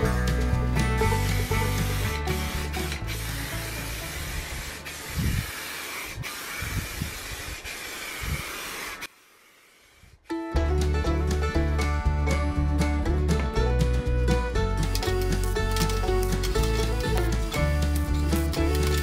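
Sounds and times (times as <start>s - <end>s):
music: 0.0s - 4.9s, 10.3s - 19.0s
aerosol spray can hissing: 1.1s - 10.0s.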